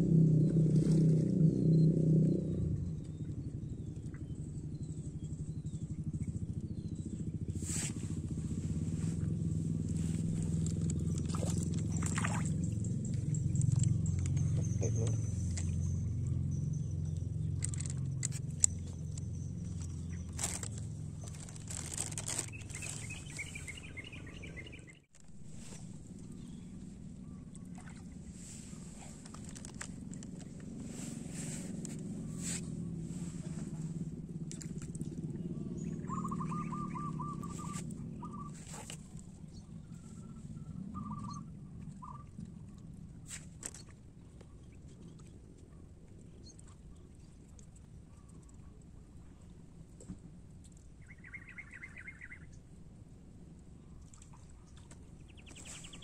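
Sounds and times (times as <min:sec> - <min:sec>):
steady low rumble: 0:00.0 - 0:43.3
trilled bird calls: 0:35.6 - 0:39.0, 0:39.6 - 0:42.3, 0:51.0 - 0:52.5.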